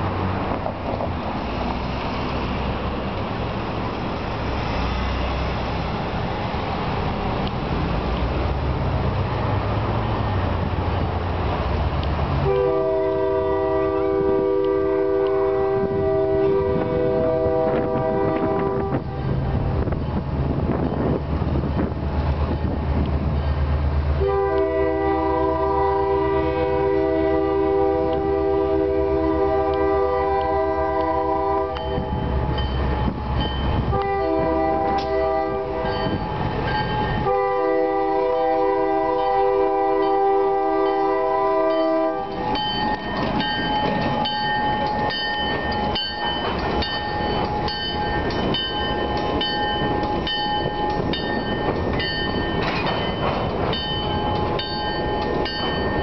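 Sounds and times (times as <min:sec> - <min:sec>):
metallic clanking of train: 0:00.0 - 0:56.0
locomotive air horn: 0:12.4 - 0:19.4, 0:24.2 - 0:32.1, 0:33.9 - 0:36.2, 0:37.2 - 0:43.1.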